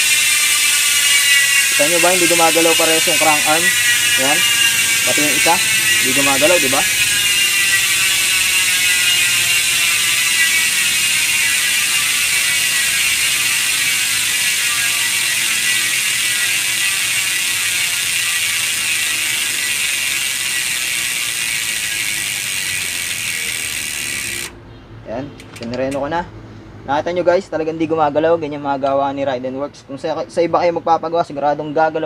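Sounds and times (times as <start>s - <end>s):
bike hub pawls ratcheting: 0.0s - 24.6s, 25.4s - 26.1s.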